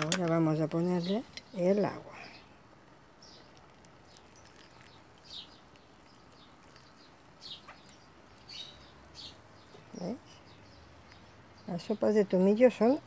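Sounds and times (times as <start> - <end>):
high bird chirps: 3.2 - 11.8.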